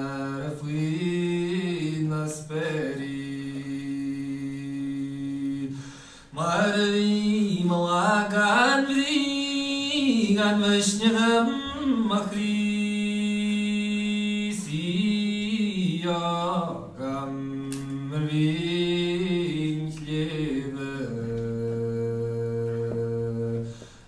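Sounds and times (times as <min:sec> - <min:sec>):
man singing unaccompanied: 0:00.0 - 0:24.0
singer breathing: 0:05.7 - 0:06.4, 0:23.7 - 0:24.0.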